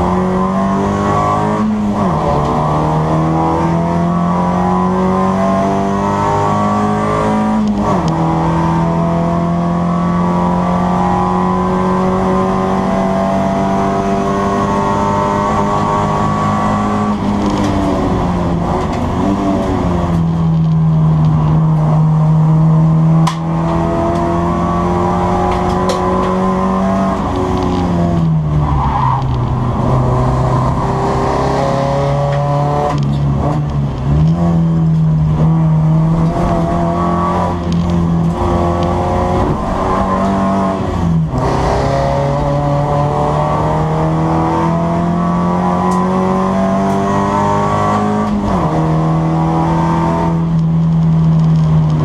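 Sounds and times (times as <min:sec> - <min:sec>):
race car engine revving: 0:00.0 - 0:52.0.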